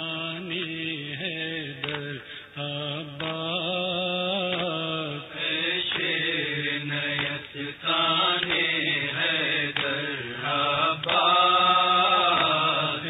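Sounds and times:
person chanting a lament: 0.0 - 13.0.

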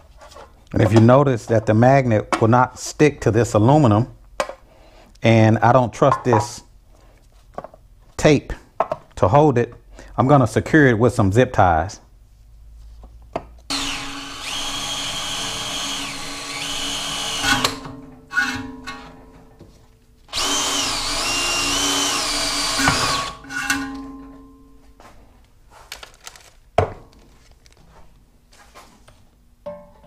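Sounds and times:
drill boring through metal: 13.7 - 18.6, 20.3 - 23.8
drill motor blips: 13.7 - 18.6, 20.3 - 23.8.

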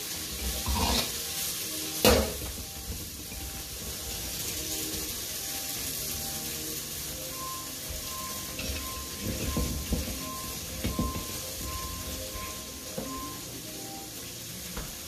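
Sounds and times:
steady hiss: 0.0 - 15.0
metal wok clunking and scraping: 0.3 - 1.4, 2.0 - 5.2, 7.9 - 13.4.

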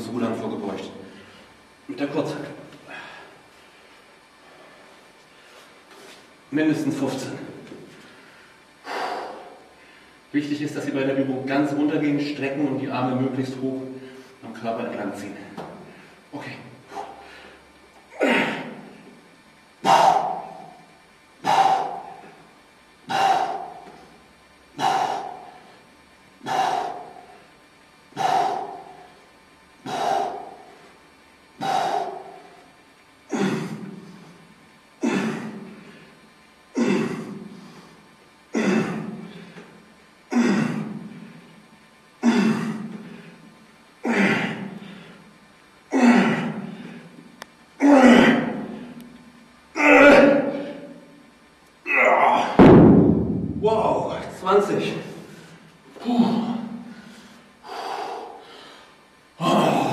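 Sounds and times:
man breathing out hard: 2.8 - 3.7, 8.0 - 10.2, 15.9 - 19.2, 19.8 - 31.0, 31.6 - 34.4, 55.1 - 59.9.

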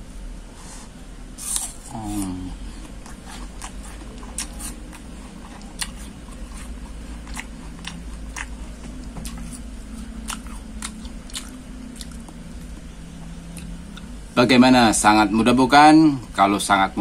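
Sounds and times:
person chewing crisp apple: 1.4 - 14.1.

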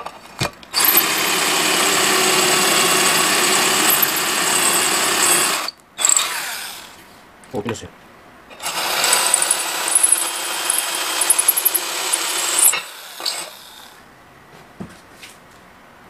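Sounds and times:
high squeaks: 0.8 - 1.4, 2.2 - 6.2
drill grinding ceramic tile: 0.8 - 7.0, 8.6 - 14.0.

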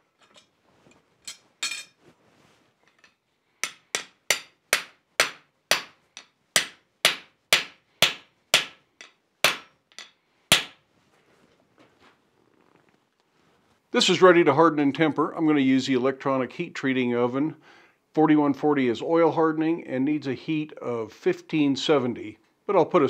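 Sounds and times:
hammer striking steel bar: 3.6 - 10.8.

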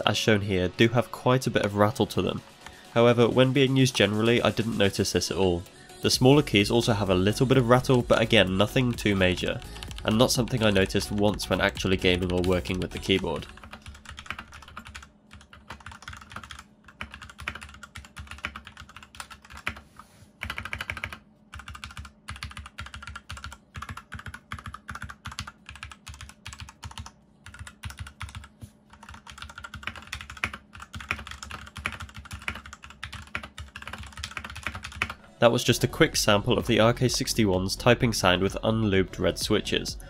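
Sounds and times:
fast typing on mechanical keyboard: 7.8 - 19.8, 20.4 - 35.2.

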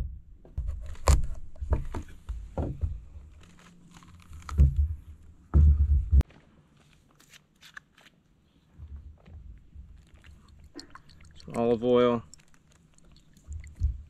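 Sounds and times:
squash being cut and cracked: 0.7 - 1.4.

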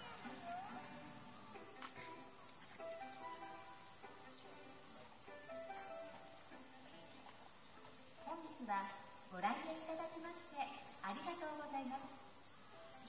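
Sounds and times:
faint music: 0.0 - 13.0
insects chirring: 0.0 - 13.0.

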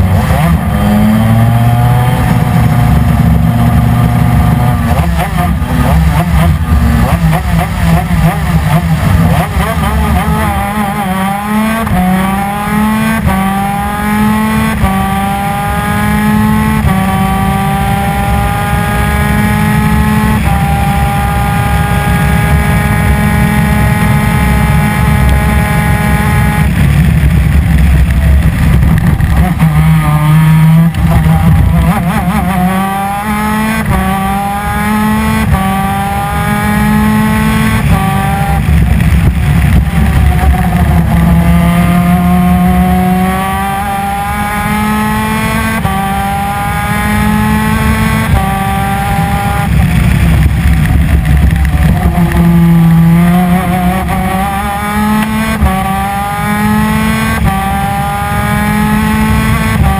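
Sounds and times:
two-stroke kart engine revving: 0.0 - 59.9.

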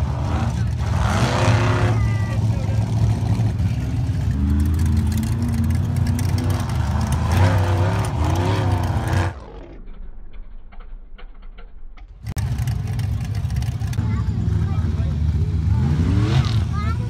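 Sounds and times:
buggy engine revving hard: 0.0 - 9.6, 14.0 - 17.0.

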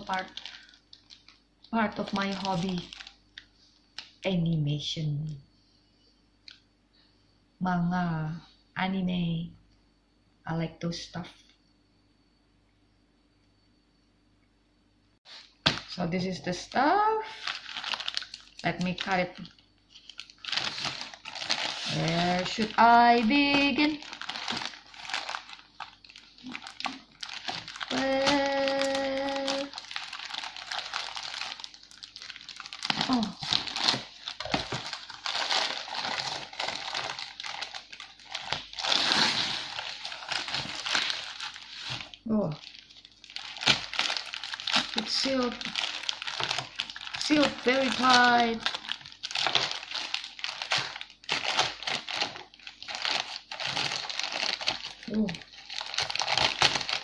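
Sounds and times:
plastic crinkling: 0.0 - 4.3, 16.7 - 57.0.

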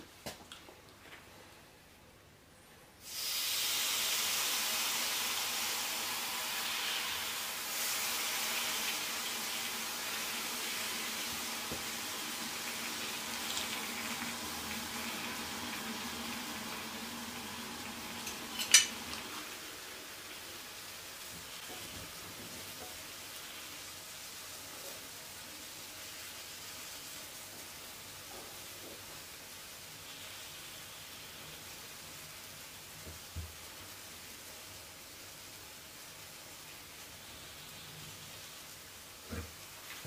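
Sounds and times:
sweets sizzling under hot metal: 3.0 - 40.0.

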